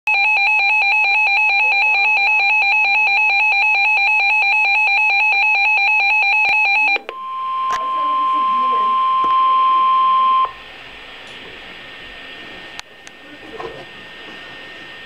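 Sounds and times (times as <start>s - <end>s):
warbling two-tone alarm beep: 0.1s - 10.6s
steady single-pitch alarm tone: 0.1s - 10.7s.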